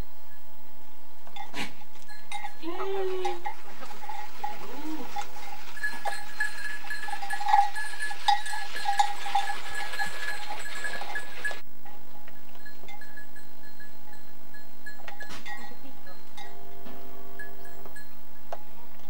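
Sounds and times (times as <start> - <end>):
livestock bell clinking: 1.3 - 19.0
faint animal call: 2.6 - 5.9.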